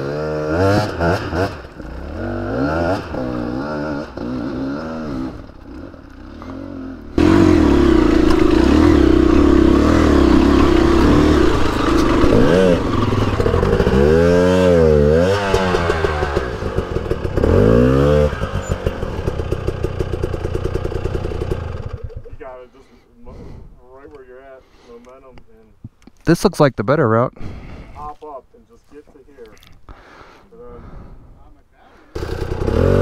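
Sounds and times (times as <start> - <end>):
dirt bike engine revving: 0.0 - 22.4, 32.2 - 33.0.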